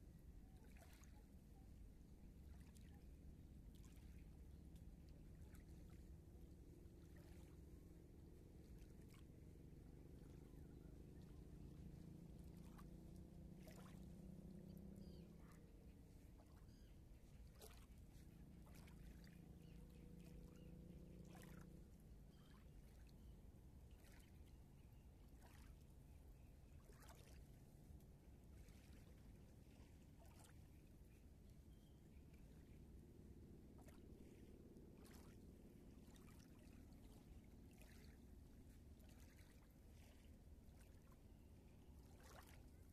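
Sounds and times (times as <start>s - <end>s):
faint distant engine drone: 0.0s - 42.9s
small ripples lapping at shore: 0.0s - 42.9s.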